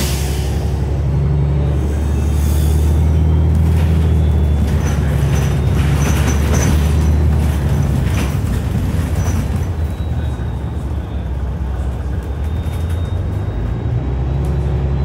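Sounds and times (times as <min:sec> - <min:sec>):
bus engine drone: 0:00.0 - 0:15.0
clicks and high squeaks: 0:03.6 - 0:10.4, 0:12.4 - 0:13.6.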